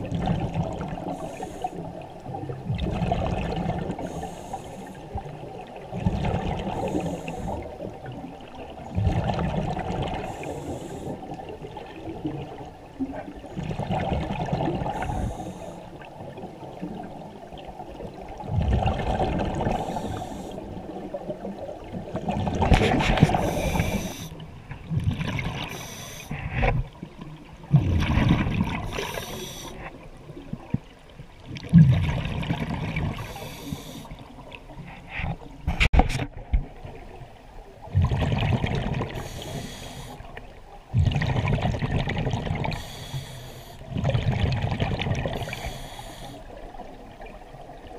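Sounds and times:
exhaled bubbles gurgling: 0.0 - 35.0, 36.4 - 47.9
hissing regulator breaths: 1.1 - 1.9, 4.0 - 5.0, 6.8 - 7.6, 10.2 - 11.2, 14.9 - 15.8, 19.7 - 20.6, 23.3 - 24.3, 25.6 - 26.5, 28.9 - 29.9, 33.2 - 34.2, 39.2 - 40.3, 42.7 - 43.8, 45.4 - 46.5.

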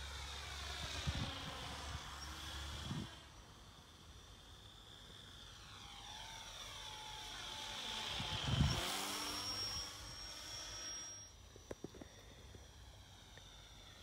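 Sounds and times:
model plane motor drone: 0.0 - 14.0.

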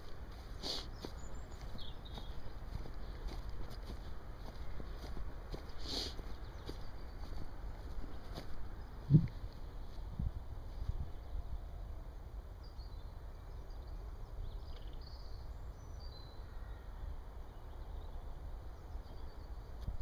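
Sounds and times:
steady low rumble: 6.4 - 11.3
faint bird chirps: 11.2 - 19.8.

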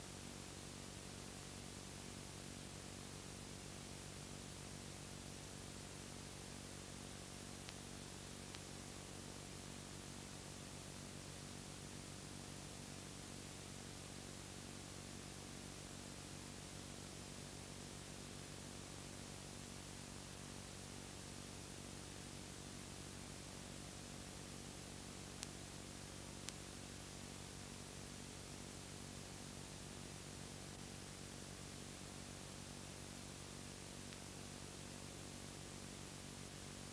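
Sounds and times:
hiss and low hum: 0.0 - 36.9
faint clicks: 7.4 - 8.8, 25.2 - 27.0, 33.6 - 34.4.

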